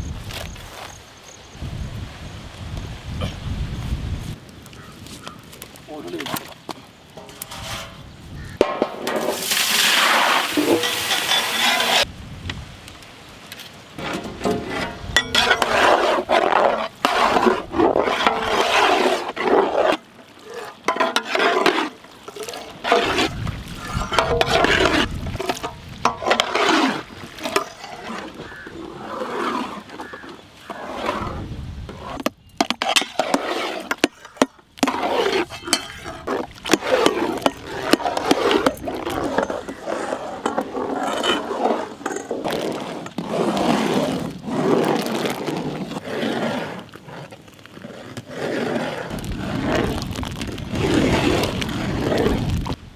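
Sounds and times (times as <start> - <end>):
fruit pulp sloshing and bubbling: 15.3 - 28.6, 34.7 - 46.0, 49.1 - 52.8.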